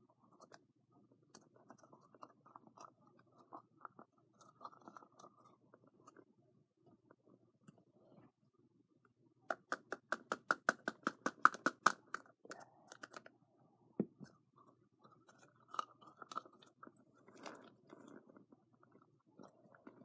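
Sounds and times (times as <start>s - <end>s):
sharp plastic clicks: 9.5s - 12.3s.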